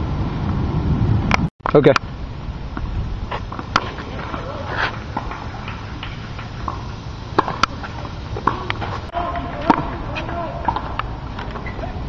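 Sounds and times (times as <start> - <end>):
outdoor background hum: 0.0 - 12.0
tennis ball hits and bounces: 2.8 - 11.9.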